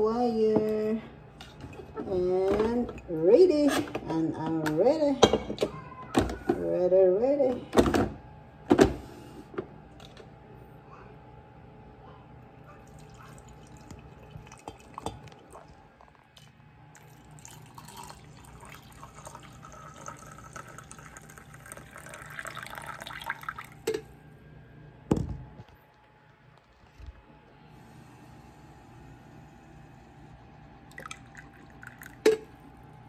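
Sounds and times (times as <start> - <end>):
coffee pouring into a mug: 12.8 - 23.9, 30.9 - 32.6.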